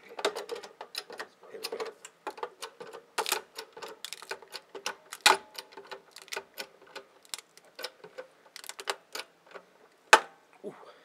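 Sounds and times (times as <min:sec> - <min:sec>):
hydraulic jack clicking and creaking: 0:00.0 - 0:09.7
metal case cracking: 0:01.8 - 0:09.3.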